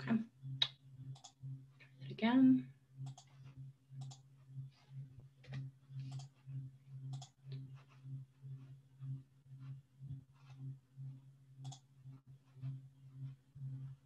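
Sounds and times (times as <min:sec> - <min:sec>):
low pulsing hum: 0:00.0 - 0:14.0
faint computer mouse clicks: 0:01.1 - 0:01.4, 0:03.0 - 0:03.3, 0:04.0 - 0:04.2, 0:07.1 - 0:07.3.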